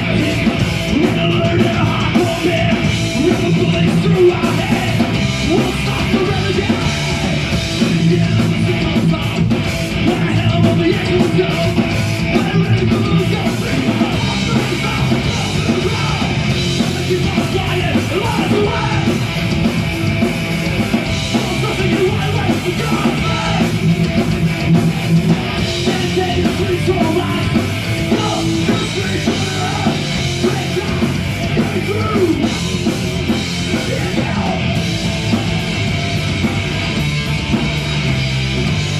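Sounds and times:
drum kit: 0.0s - 38.9s
electric guitar: 0.0s - 38.9s
shouted vocals: 12.4s - 19.2s, 21.4s - 23.8s, 25.4s - 32.6s, 33.7s - 34.8s.

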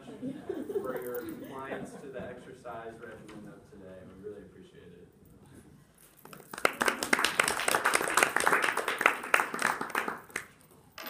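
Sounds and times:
audience applauding: 6.3s - 10.6s.

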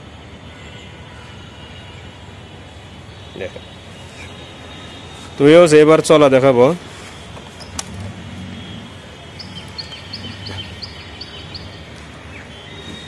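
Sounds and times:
outdoor background noise: 0.0s - 13.0s
small bird chirping: 9.4s - 12.5s.

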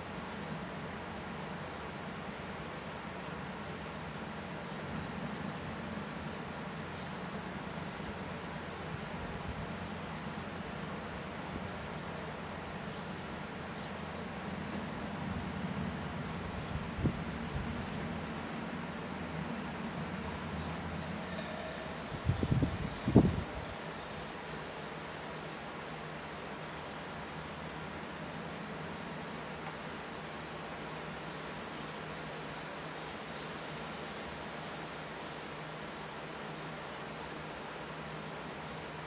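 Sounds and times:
sparrows chirping: 3.6s - 9.4s, 10.4s - 15.9s, 17.3s - 25.8s, 26.6s - 31.9s.

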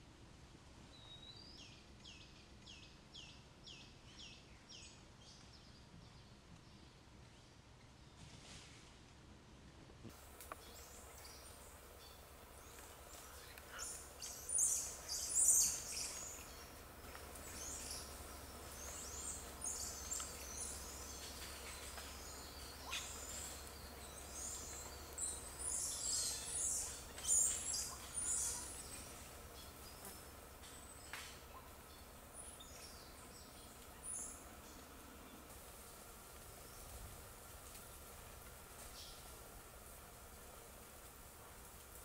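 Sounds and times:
faint low hum: 0.0s - 42.0s.

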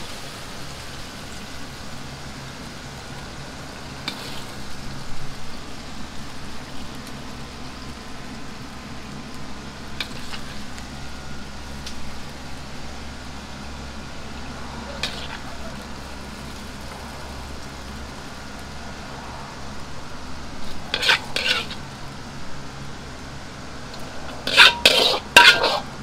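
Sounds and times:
kitchen hum: 3.2s - 26.0s
metal ladle scraping a wok: 4.1s - 4.6s, 10.0s - 10.7s, 14.8s - 17.0s, 20.5s - 22.0s, 23.9s - 26.0s.

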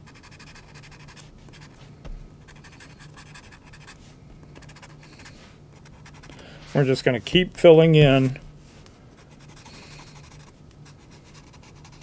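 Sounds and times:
pencil scratching on paper: 0.0s - 1.8s, 2.5s - 4.0s, 4.6s - 6.3s, 9.1s - 12.0s.

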